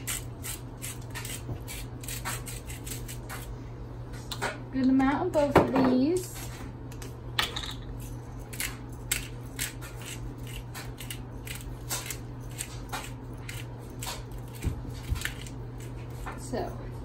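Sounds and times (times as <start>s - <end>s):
pepper grinders grinding: 0.0s - 3.5s, 7.4s - 16.8s.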